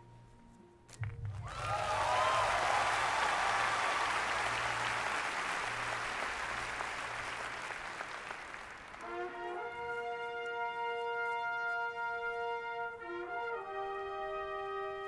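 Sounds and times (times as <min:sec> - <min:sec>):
stadium crowd applauding and cheering: 0:01.0 - 0:11.3
held brass chord: 0:09.0 - 0:15.0.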